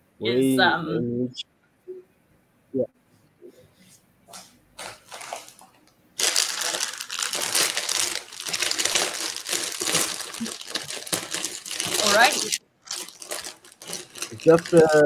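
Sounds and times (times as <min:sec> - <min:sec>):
crinkling rustling with crackles: 0:04.3 - 0:15.0.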